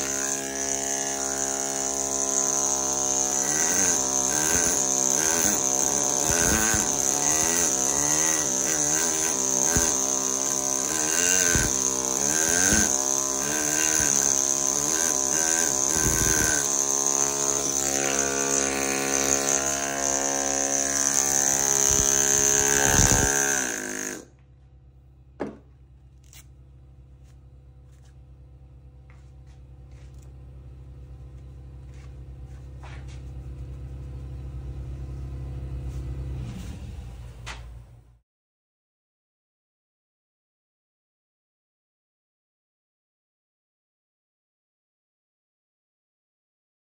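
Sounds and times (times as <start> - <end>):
pneumatic hammer buzzing: 0.0 - 24.4
low machine hum: 24.4 - 38.0.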